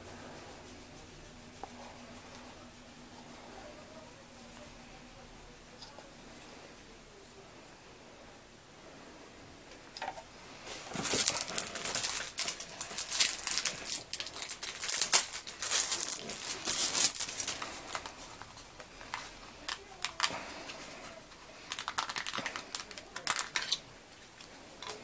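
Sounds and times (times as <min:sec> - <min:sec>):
packaging crinkling: 0:10.6 - 0:23.8.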